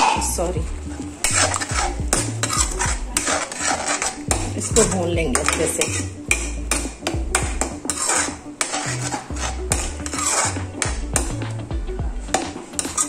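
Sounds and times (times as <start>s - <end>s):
metal spoon scraping metal pan: 0.0s - 11.4s, 12.3s - 13.0s
paste frying: 0.0s - 13.0s.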